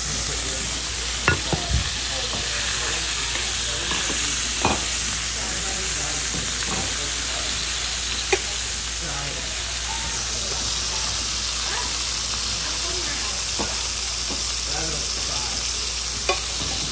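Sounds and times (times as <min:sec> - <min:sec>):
steaks sizzling in oil: 0:00.0 - 0:16.9.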